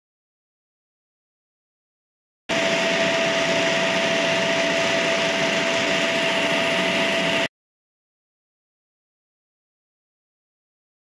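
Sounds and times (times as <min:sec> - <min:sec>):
constant whine: 0:02.5 - 0:07.5
electric pump motor whirring: 0:02.5 - 0:07.5.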